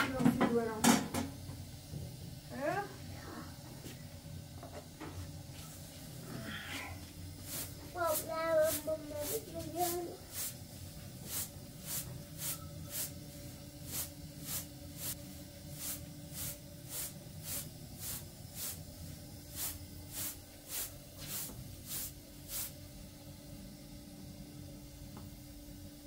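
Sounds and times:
grains swishing on metal tray: 0:07.4 - 0:10.6, 0:11.2 - 0:13.2, 0:13.8 - 0:18.8, 0:19.5 - 0:22.8.

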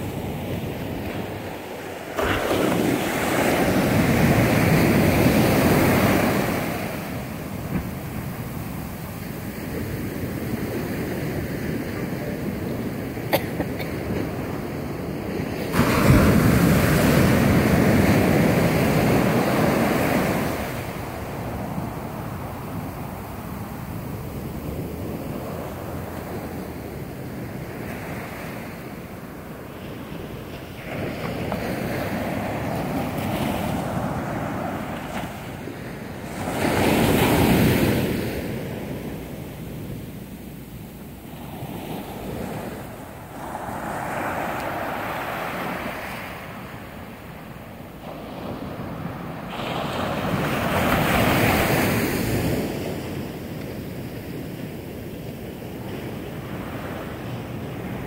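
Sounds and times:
ocean surf breaking on beach: 0:00.0 - 0:58.0.

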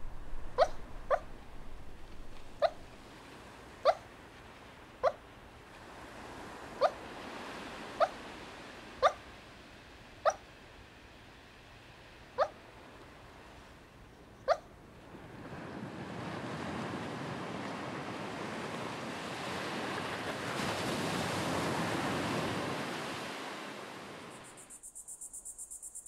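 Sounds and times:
waves breaking on a shore: 0:00.0 - 0:24.7
dog barking: 0:00.5 - 0:01.4, 0:02.4 - 0:02.9, 0:03.8 - 0:04.0, 0:06.8 - 0:07.0, 0:09.0 - 0:09.2, 0:10.2 - 0:10.4, 0:12.4 - 0:12.6, 0:14.5 - 0:14.7.

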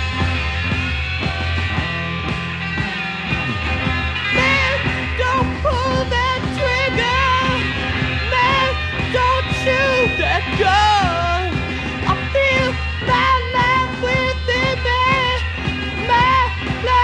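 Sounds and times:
psychedelic rock music: 0:00.0 - 0:17.0.

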